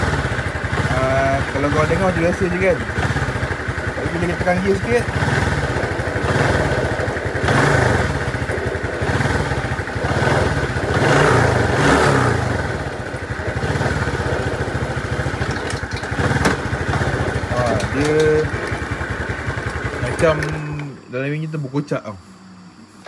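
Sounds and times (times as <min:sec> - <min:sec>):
motorcycle engine running: 0:00.0 - 0:21.1.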